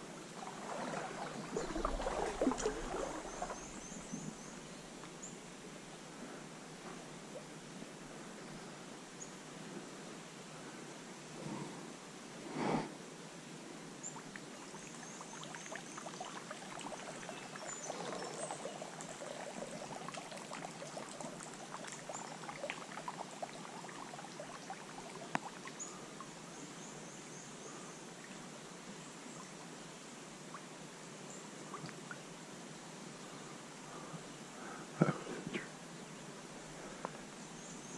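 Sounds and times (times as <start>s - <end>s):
stream trickling and gurgling: 0.0s - 8.4s, 14.0s - 33.0s, 34.5s - 37.9s
faint bird chirps: 1.0s - 5.4s.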